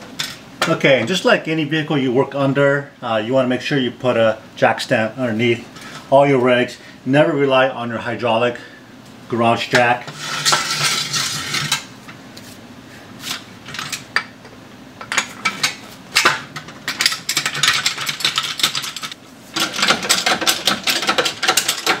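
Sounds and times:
metal clanking and rattling: 0:15.0 - 0:22.0.

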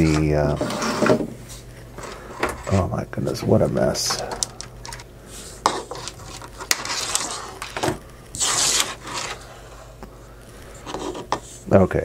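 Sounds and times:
cable scraping and rubbing: 0:00.0 - 0:01.3, 0:05.4 - 0:07.8, 0:08.4 - 0:10.0.

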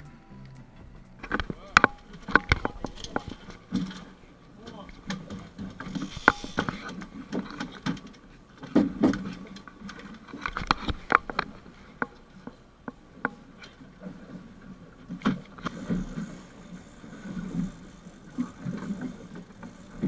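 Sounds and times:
low steady rumble: 0:00.0 - 0:07.3.

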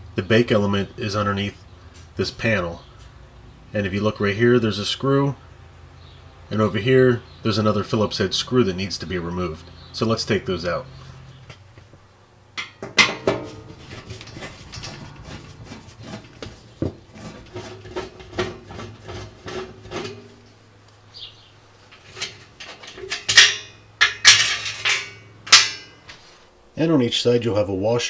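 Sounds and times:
screw and washer clinking: 0:12.6 - 0:15.7, 0:21.9 - 0:25.9.

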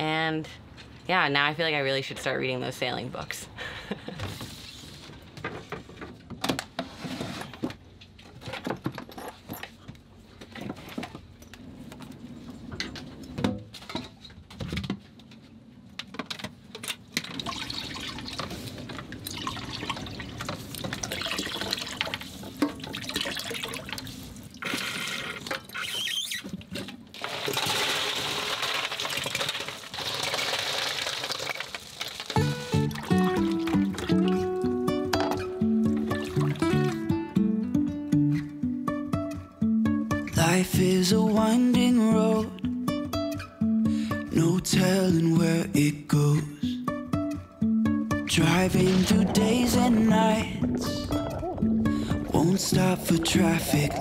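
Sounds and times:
water splashing over ice: 0:17.3 - 0:24.6, 0:27.2 - 0:34.2
water running from a hose: 0:27.2 - 0:34.0.

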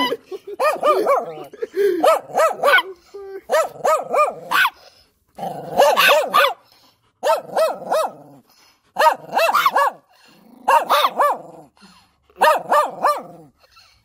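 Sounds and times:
dog barking: 0:00.6 - 0:01.4, 0:02.0 - 0:04.8, 0:05.7 - 0:06.6, 0:07.2 - 0:08.2, 0:09.0 - 0:10.0, 0:10.7 - 0:11.5, 0:12.4 - 0:13.4.

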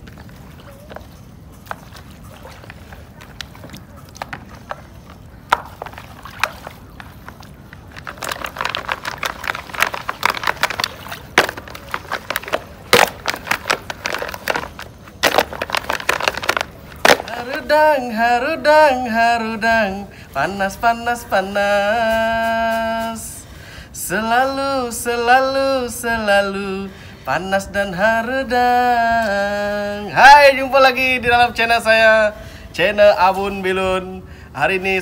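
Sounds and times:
wet squelches and clicks: 0:00.0 - 0:17.9
water sloshing and splashing: 0:00.0 - 0:18.2.

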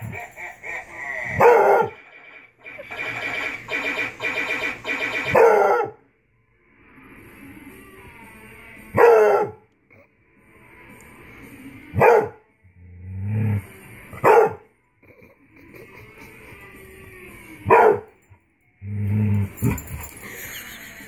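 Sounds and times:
dog barking: 0:01.4 - 0:02.0, 0:05.3 - 0:06.0, 0:09.0 - 0:09.6, 0:12.0 - 0:12.4, 0:14.2 - 0:14.6, 0:17.7 - 0:18.1.

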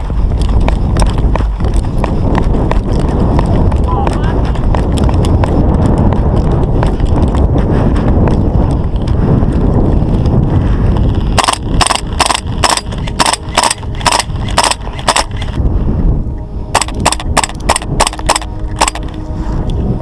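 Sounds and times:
low rumble of movement: 0:00.0 - 0:20.0
airsoft rifle firing shots: 0:11.4 - 0:15.3, 0:16.8 - 0:19.0.

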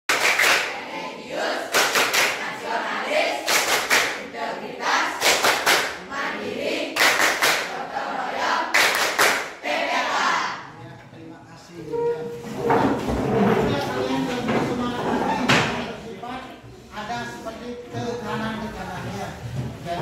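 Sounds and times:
hand claps: 0:00.1 - 0:00.7, 0:01.7 - 0:02.4, 0:03.5 - 0:04.2, 0:05.2 - 0:06.0, 0:07.0 - 0:07.7, 0:08.7 - 0:09.6
group chanting in unison: 0:00.6 - 0:10.7.

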